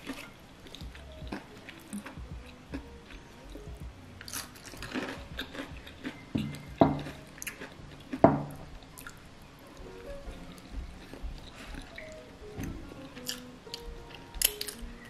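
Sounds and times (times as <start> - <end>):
chewing and crunching fried chicken: 0.0 - 9.2, 9.8 - 12.2, 13.0 - 15.0.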